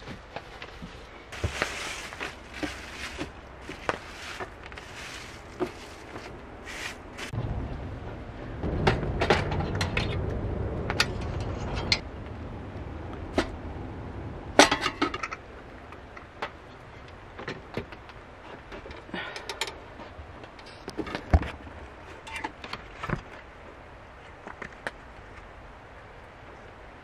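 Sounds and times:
low rustling rumble: 1.3s - 14.6s.

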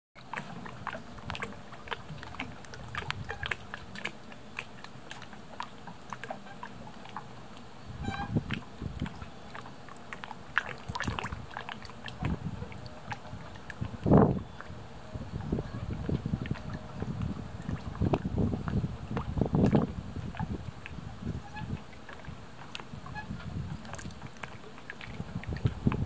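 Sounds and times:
low steady rumble: 0.2s - 26.0s
ripples lapping against boat hull: 0.2s - 26.0s
brief squeak: 8.0s - 8.4s.

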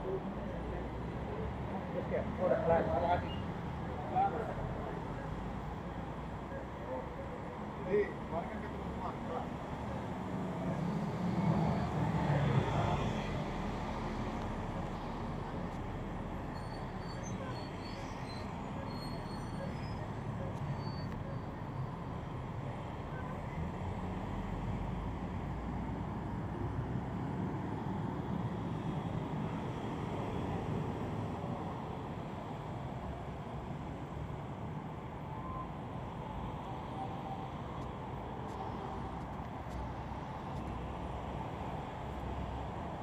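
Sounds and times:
road traffic noise: 0.0s - 43.0s
faint high squeaks: 16.4s - 21.9s.

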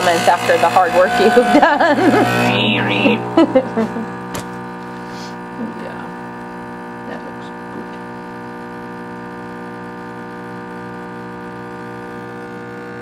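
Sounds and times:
espresso machine pump humming: 0.0s - 13.0s.

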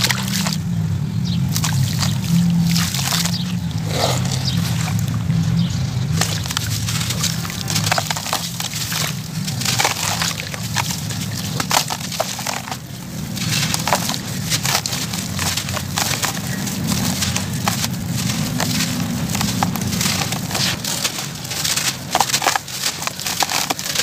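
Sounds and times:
dry chunks crunching by hand: 0.0s - 24.0s.

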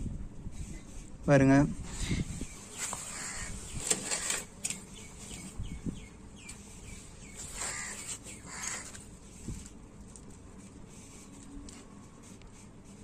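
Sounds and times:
crows cawing: 3.0s - 4.4s, 7.5s - 9.1s.

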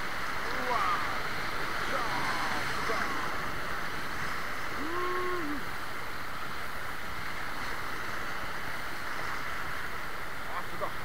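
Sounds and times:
river rapids rushing: 0.0s - 11.0s
person calling: 4.7s - 5.7s.

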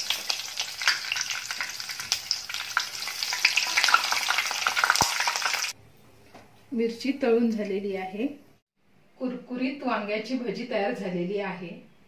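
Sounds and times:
chillies sizzling in hot oil: 0.0s - 5.8s.

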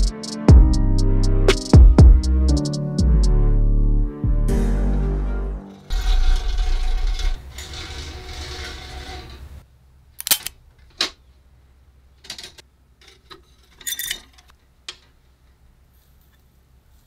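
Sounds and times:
background music: 0.0s - 6.0s
metal bead chain rattling: 13.6s - 14.4s.

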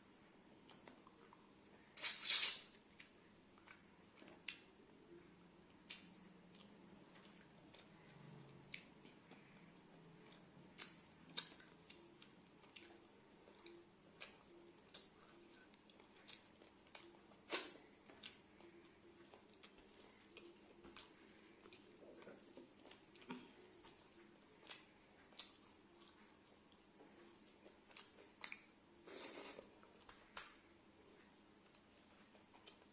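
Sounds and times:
person chewing food: 0.6s - 32.9s
soft mouth clicks and smacks: 3.0s - 4.7s, 5.8s - 8.1s, 8.7s - 9.6s, 19.3s - 30.6s.

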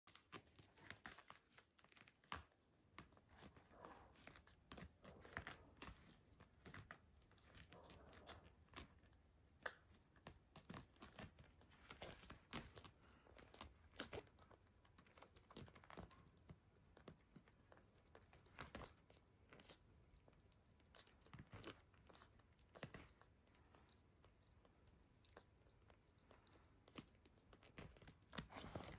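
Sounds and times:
puppy suckling: 7.6s - 28.9s.

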